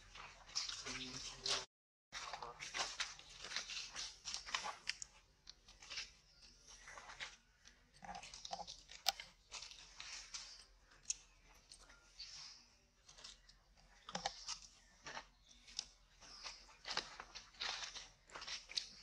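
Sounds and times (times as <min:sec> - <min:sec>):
footsteps crunching dry leaves: 0:00.2 - 0:05.1, 0:16.2 - 0:19.0.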